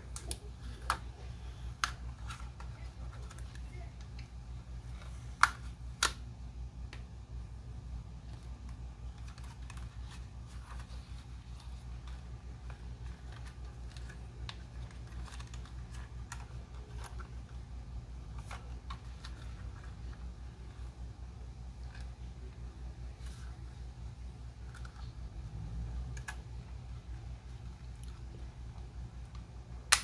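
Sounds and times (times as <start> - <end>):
steady low hum: 0.0 - 30.0
drone and packaging handled: 8.2 - 17.7.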